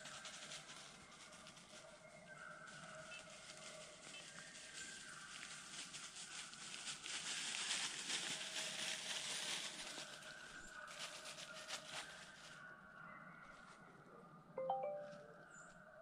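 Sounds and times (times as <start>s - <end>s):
crackling rustling with clicks: 3.1s - 12.5s.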